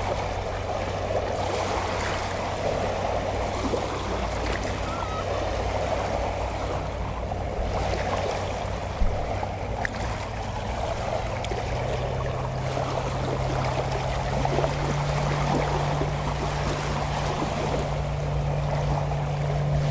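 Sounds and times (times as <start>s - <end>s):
boat motor droning: 0.0s - 19.9s
small waves lapping: 0.0s - 19.9s.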